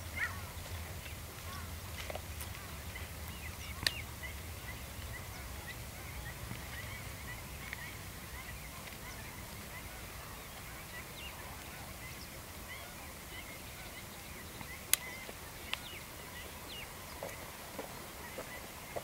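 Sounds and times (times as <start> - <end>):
birds chirping: 0.0 - 19.0
faint click: 14.9 - 15.8.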